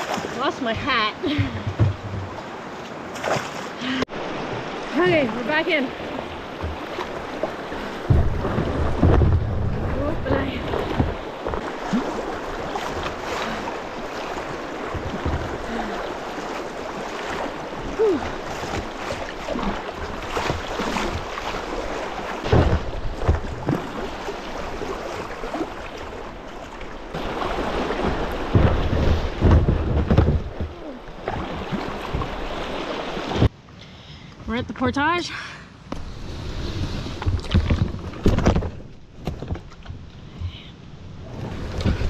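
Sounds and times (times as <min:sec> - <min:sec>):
wind buffeting microphone: 0:04.2 - 0:16.0.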